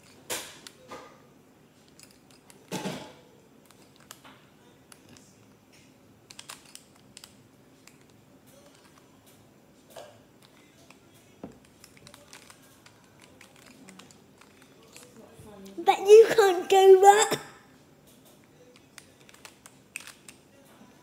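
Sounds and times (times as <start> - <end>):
puzzle cube clicking: 6.3 - 9.0, 11.5 - 15.1, 18.8 - 20.4.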